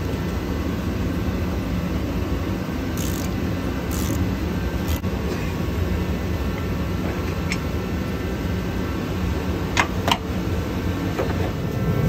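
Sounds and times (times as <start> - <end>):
low background hum: 0.0 - 12.0
ratchet wrench clicks: 3.0 - 4.2, 4.8 - 5.0.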